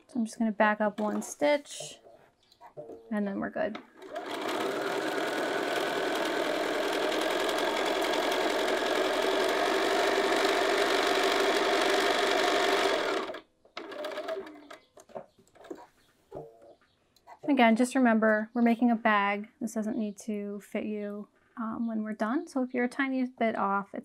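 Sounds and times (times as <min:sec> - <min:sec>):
sewing machine stitching: 0:01.0 - 0:01.6, 0:03.7 - 0:14.8.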